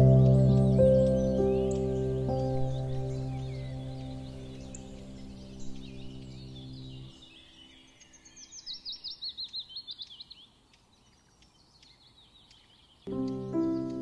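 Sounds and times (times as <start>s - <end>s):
soft background music: 0.0s - 7.4s, 13.1s - 14.0s
bird chirping: 0.0s - 14.0s.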